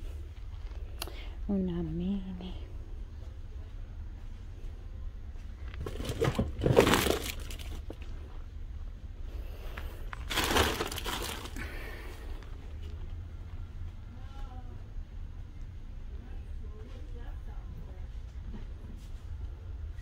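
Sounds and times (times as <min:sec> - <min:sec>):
low steady hum: 0:00.0 - 0:20.0
rustling crinkling handling noise: 0:05.4 - 0:08.4, 0:09.5 - 0:13.1.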